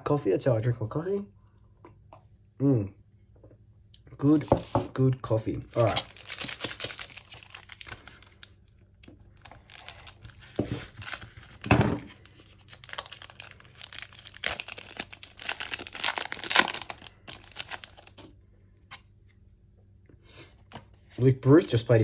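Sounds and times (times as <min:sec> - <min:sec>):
foil wrapper tearing and crinkling: 0:05.8 - 0:08.7, 0:09.3 - 0:18.2.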